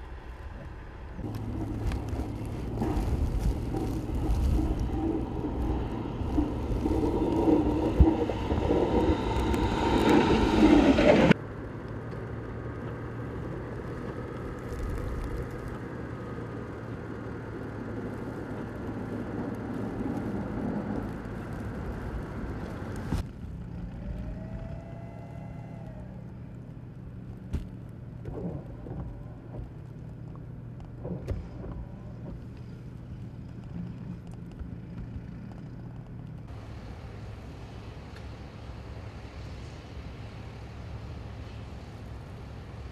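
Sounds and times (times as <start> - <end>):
plow blade scraping snow: 1.2 - 11.4
rising and falling whine: 1.2 - 11.4
truck engine running: 1.2 - 11.4.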